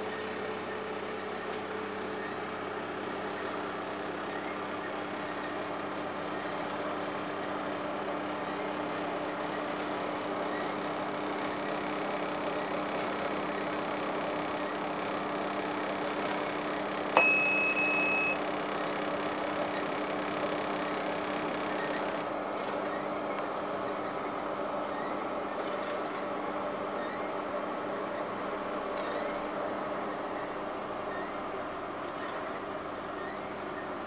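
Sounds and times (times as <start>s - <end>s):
microwave oven humming: 0.0s - 34.0s
high electronic beep: 17.2s - 18.4s
meter click: 17.2s - 18.4s.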